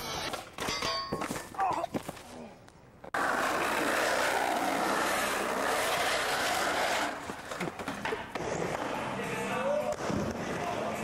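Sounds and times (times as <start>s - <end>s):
skateboard wheels rolling on bricks: 3.0s - 11.0s.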